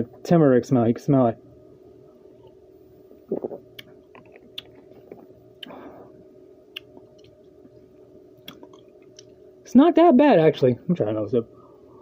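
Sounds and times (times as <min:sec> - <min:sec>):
person swallowing juice: 0:03.2 - 0:05.8, 0:08.4 - 0:08.9
tongue clicks: 0:03.3 - 0:05.8, 0:06.7 - 0:07.4, 0:08.4 - 0:09.4
wet lip smacks: 0:03.3 - 0:05.8, 0:08.4 - 0:09.4
short breath: 0:05.6 - 0:06.2.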